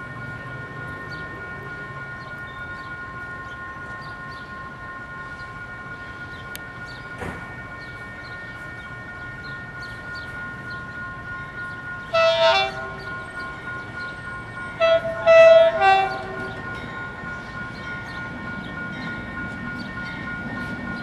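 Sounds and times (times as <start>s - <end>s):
diesel locomotive horn blasts: 12.1s - 13.1s, 14.8s - 16.6s.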